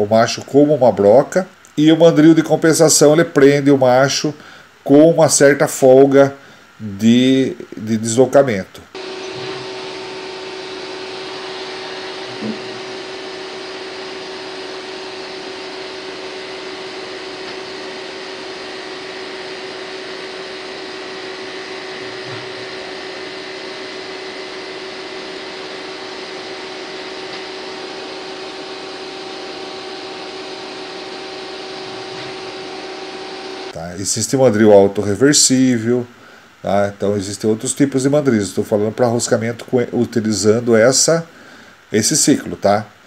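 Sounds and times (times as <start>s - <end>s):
machine whine over hum: 8.9s - 36.4s.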